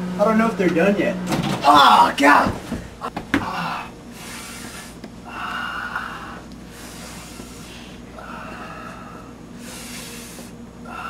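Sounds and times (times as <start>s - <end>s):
man breathing heavily and gasping: 3.3s - 11.0s.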